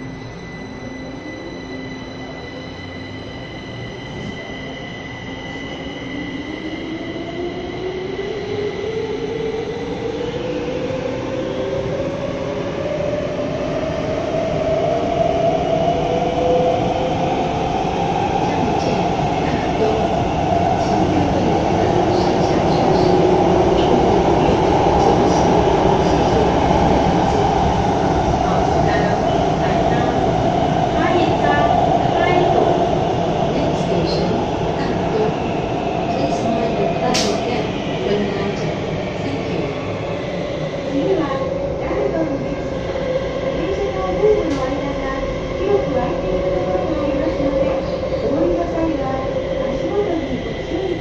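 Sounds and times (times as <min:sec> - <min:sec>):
train running noise: 0:11.8 - 0:51.0.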